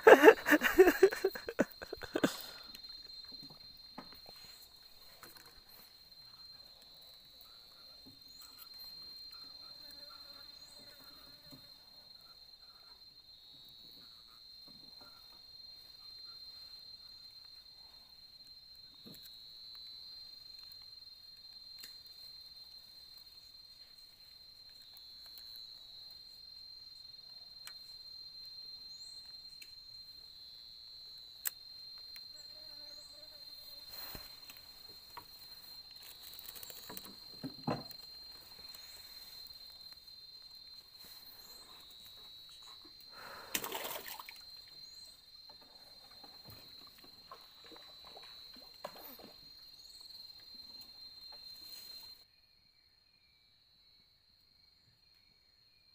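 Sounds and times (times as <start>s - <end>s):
insects chirring: 0.0s - 55.9s
knocks and rustles in wooden boat: 34.8s - 38.8s, 45.4s - 49.6s.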